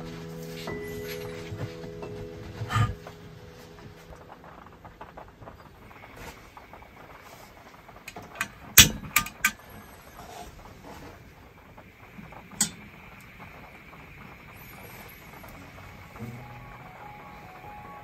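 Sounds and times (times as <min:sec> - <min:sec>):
gas burner hissing: 0:00.0 - 0:18.0
stove igniter clicking: 0:08.0 - 0:09.7, 0:12.4 - 0:13.6.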